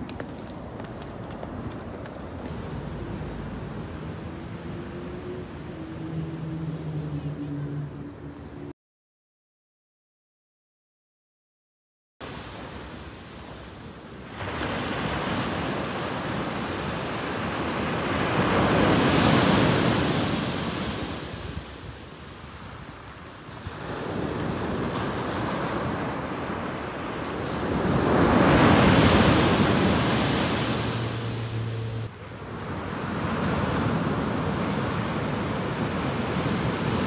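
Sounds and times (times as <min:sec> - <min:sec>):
waves crashing on pebble beach: 0:12.3 - 0:37.0.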